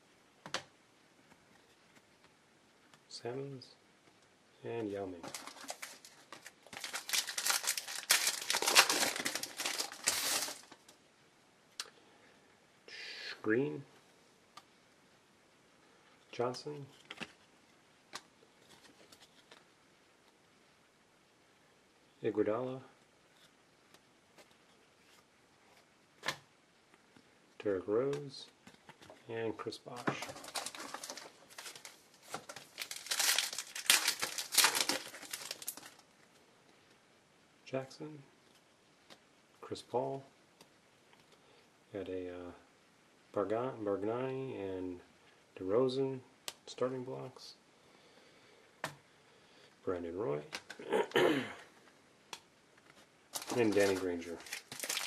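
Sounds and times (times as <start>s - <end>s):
foil wrapper crinkling: 5.2s - 10.9s, 30.0s - 36.0s, 53.3s - 55.0s
wrapper tearing: 5.2s - 10.9s, 30.2s - 36.0s, 53.3s - 55.0s.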